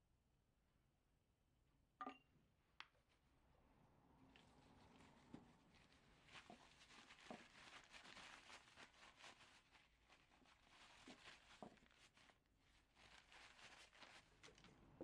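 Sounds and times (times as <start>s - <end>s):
paper towel scrubbing metal: 4.4s - 14.7s.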